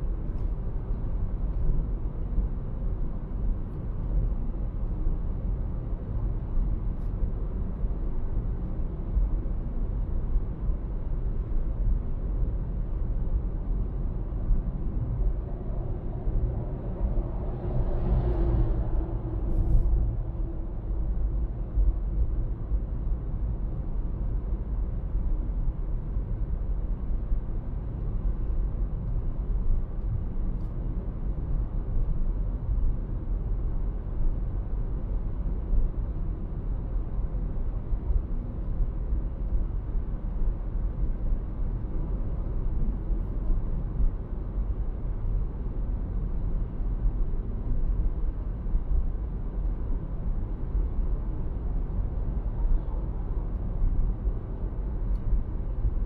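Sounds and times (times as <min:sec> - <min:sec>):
car engine and road rumble: 0:00.0 - 0:56.0.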